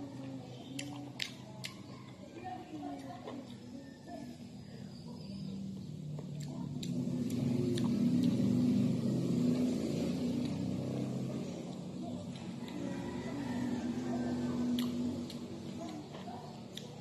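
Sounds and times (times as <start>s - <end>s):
vehicle engine humming: 3.6s - 17.0s.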